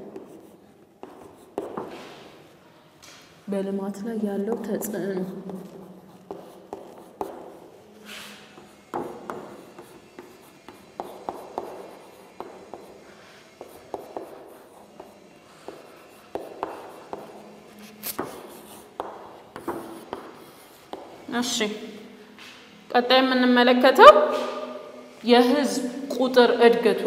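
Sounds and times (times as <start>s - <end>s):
pen scratching on writing surface: 0.0s - 2.3s, 5.1s - 21.2s.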